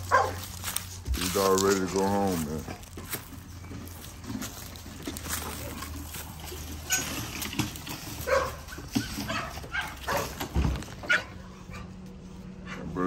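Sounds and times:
dogs barking: 0:00.0 - 0:00.9, 0:06.5 - 0:13.0.

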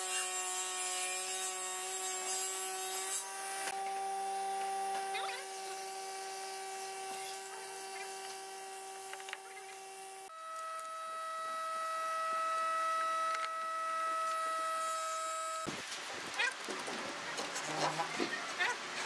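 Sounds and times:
steady hum of held tones: 0:08.0 - 0:15.7.

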